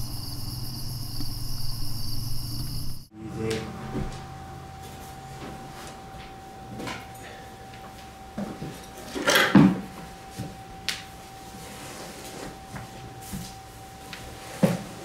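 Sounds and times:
faint steady high whine: 0.0s - 15.0s.

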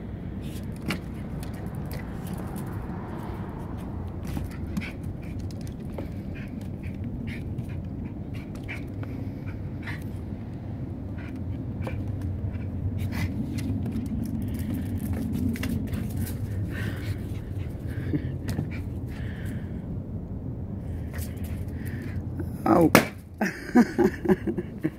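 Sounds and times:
steady low rumble: 0.0s - 24.9s
dog panting: 0.6s - 19.4s
paws tapping on wooden steps: 3.8s - 9.6s.

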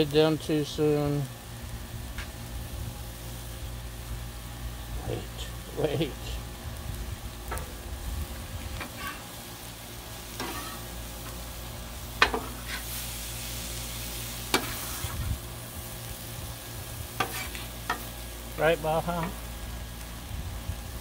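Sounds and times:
fish and vegetables sizzling on griddle: 0.0s - 21.0s
metal spatula scraping steel: 8.8s - 9.3s, 10.3s - 10.9s, 12.2s - 13.0s, 17.2s - 18.0s.

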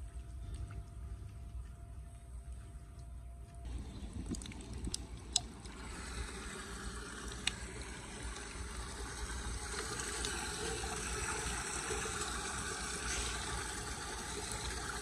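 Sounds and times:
water gurgling into drain: 3.7s - 15.0s.

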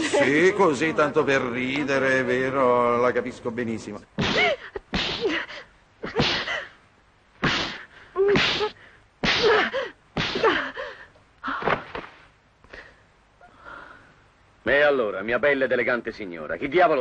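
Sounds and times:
woman crying out and gasping: 9.4s - 11.7s.

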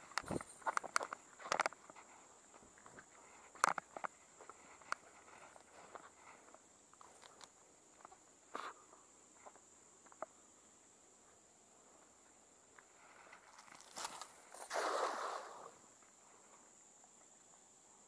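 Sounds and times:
high insect drone: 0.0s - 18.0s.

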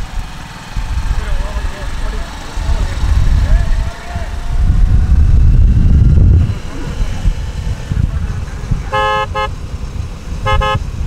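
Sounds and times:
low rumble of vehicle noise: 0.0s - 11.0s
vehicle horn toots: 8.8s - 9.6s, 10.4s - 11.0s.

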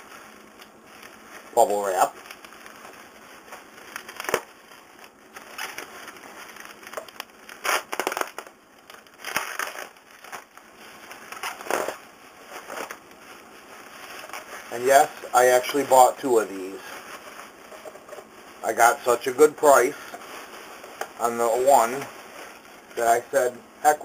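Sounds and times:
bubble wrap crinkling: 0.0s - 24.0s.

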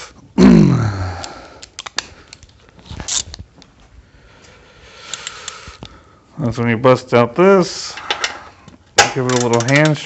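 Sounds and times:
tools clicking and tapping: 8.0s - 10.0s.

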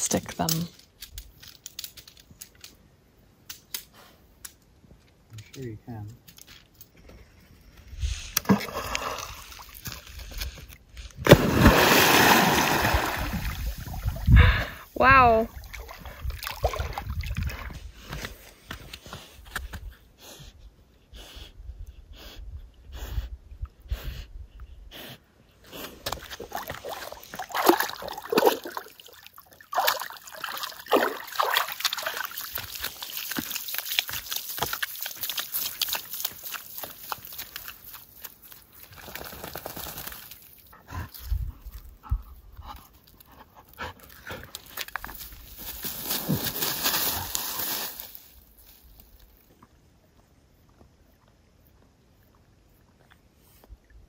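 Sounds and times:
dog paddling and splashing: 11.3s - 14.4s, 15.3s - 17.8s, 26.2s - 40.5s
water sloshing and dripping: 15.5s - 17.7s, 26.1s - 39.3s.

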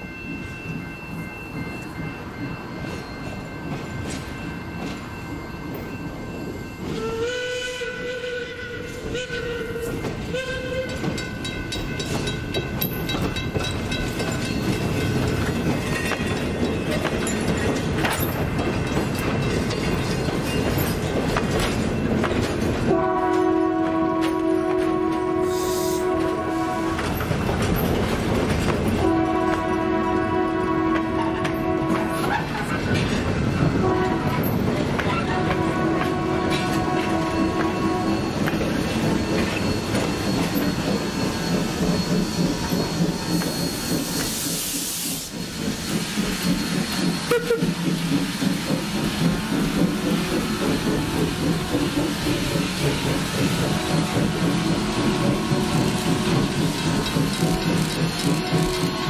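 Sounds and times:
train wheels rumbling over rail joints: 0.2s - 59.0s
train whistle chord: 6.9s - 11.0s, 22.9s - 27.0s, 29.0s - 32.2s, 35.4s - 38.4s, 47.2s - 47.7s
steam hissing: 25.4s - 26.2s, 37.8s - 59.0s.

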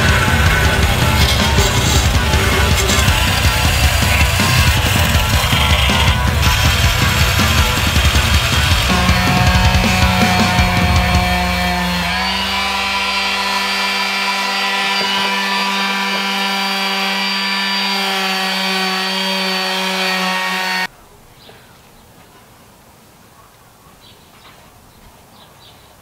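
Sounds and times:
orbital sander motor hum: 0.0s - 20.9s.

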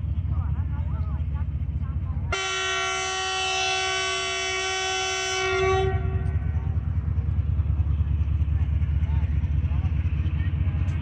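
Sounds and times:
train horn blast: 2.3s - 6.6s.

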